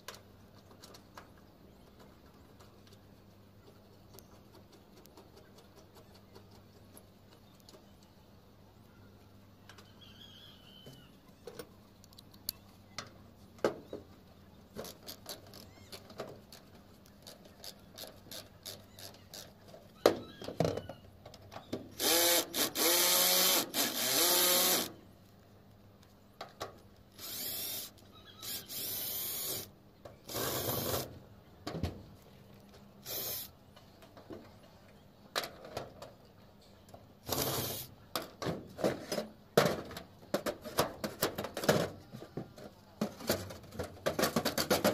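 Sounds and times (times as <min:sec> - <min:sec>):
cordless drill boring into metal: 0:22.0 - 0:24.9, 0:27.2 - 0:29.7, 0:33.0 - 0:33.5, 0:37.3 - 0:37.9.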